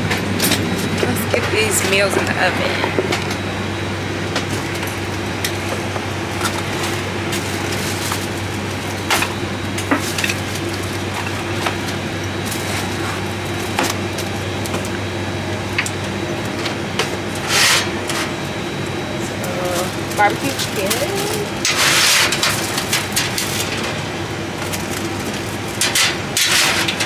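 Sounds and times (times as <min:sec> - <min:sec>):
steady galley hum: 0:00.0 - 0:27.0
rustling scrape: 0:17.4 - 0:18.3, 0:21.6 - 0:22.8
foil and metal trays clicking: 0:19.4 - 0:24.0, 0:24.6 - 0:27.0.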